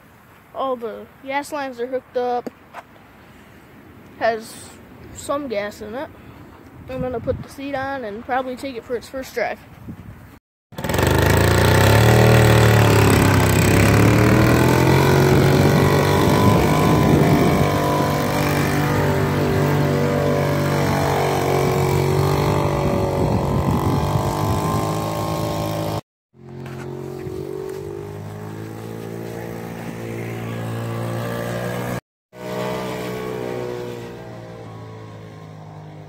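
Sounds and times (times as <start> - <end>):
two-stroke engine revving: 10.7 - 36.0.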